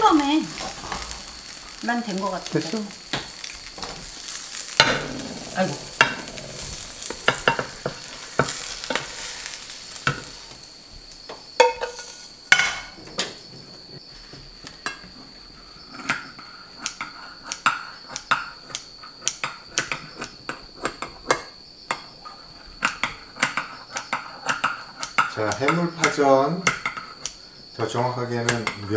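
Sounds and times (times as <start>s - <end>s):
pancake sizzling: 0.0s - 28.9s.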